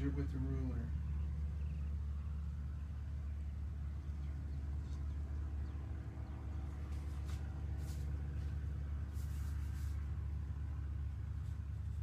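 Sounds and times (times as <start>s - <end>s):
low machine hum: 0.0s - 12.0s
faint rustles: 6.6s - 10.6s.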